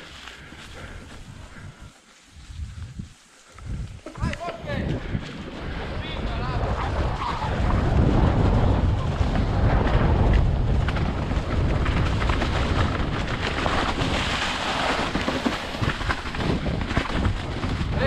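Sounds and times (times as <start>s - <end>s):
bike tyres rolling on dirt trail: 0.0s - 18.0s
wind buffeting camera: 0.0s - 18.0s
bike knocks and rattles: 7.8s - 18.0s.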